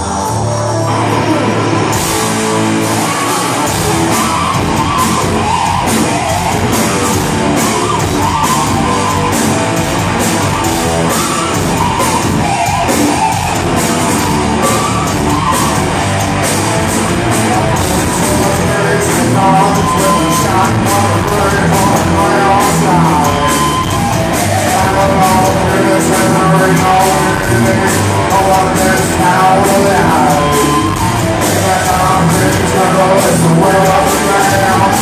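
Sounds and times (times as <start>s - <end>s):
heavy metal band playing live: 0.0s - 35.0s.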